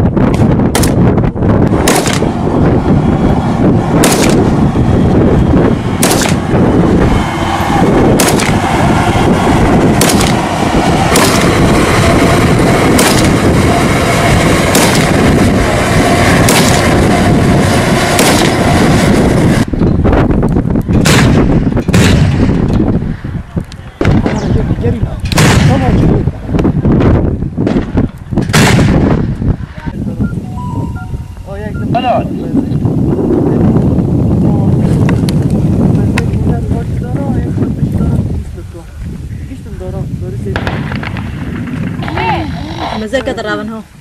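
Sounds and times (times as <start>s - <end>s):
heavy rumble: 0.0s - 44.0s
rifle shots: 0.3s - 1.0s, 1.8s - 2.3s, 4.0s - 4.5s, 6.0s - 6.5s, 8.2s - 8.6s, 10.0s - 10.4s, 11.1s - 11.6s, 12.9s - 13.4s, 14.7s - 15.2s, 16.4s - 16.9s, 18.1s - 18.6s, 21.0s - 22.6s, 25.3s - 26.0s, 27.7s - 29.1s.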